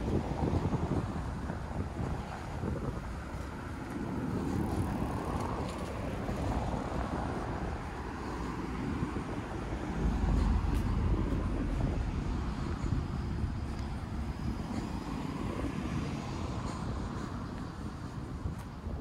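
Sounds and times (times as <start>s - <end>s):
low traffic rumble: 0.0s - 19.0s
passing cars: 0.0s - 19.0s.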